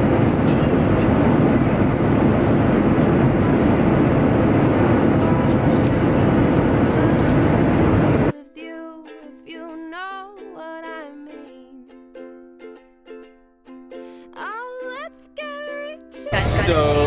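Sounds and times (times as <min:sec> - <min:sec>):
airliner cabin noise: 0:00.0 - 0:08.3, 0:16.3 - 0:17.0
ukulele music: 0:00.0 - 0:17.0.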